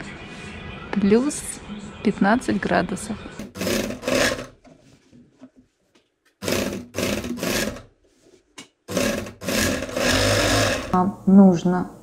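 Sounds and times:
sewing machine stitching: 3.4s - 4.6s, 6.4s - 7.9s, 8.9s - 11.0s.

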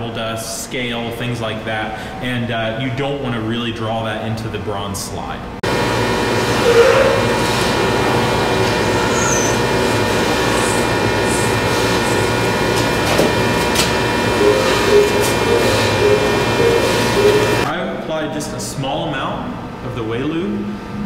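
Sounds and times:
hydraulic motor and pump humming: 5.6s - 17.8s.

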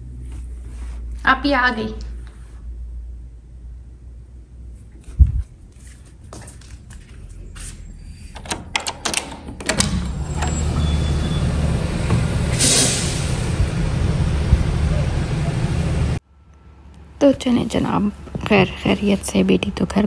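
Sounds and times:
outdoor noise with low rumble: 0.0s - 20.0s
door deadbolt and handle rattling: 8.4s - 10.2s.

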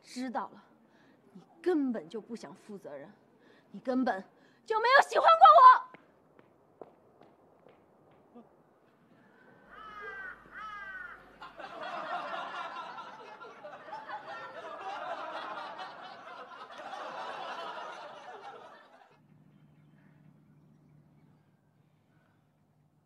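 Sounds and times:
group of people laughing: 9.7s - 19.2s.

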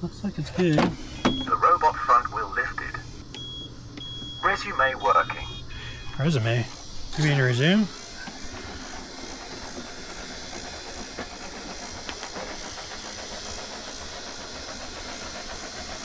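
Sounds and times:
robotic lawnmower motors humming: 4.4s - 16.0s.

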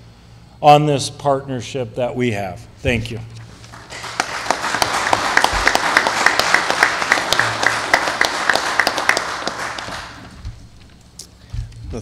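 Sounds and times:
small audience applauding: 3.6s - 10.6s
close hands clapping steadily: 3.7s - 10.6s.

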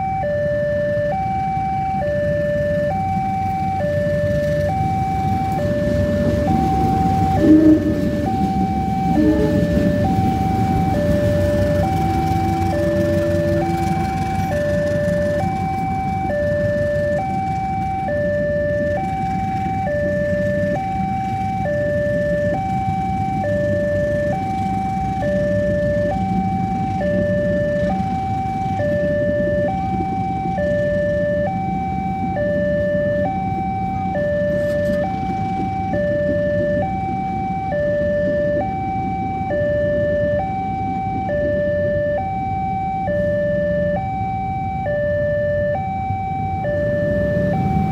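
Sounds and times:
level crossing two-tone alarm: 0.0s - 47.9s
train rumbling on rails: 3.2s - 39.4s, 46.8s - 47.9s.

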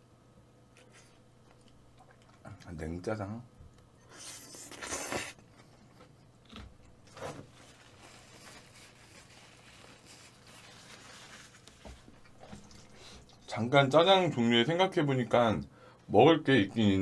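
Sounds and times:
chewing: 0.7s - 2.8s
noodles slurping: 4.1s - 5.5s.

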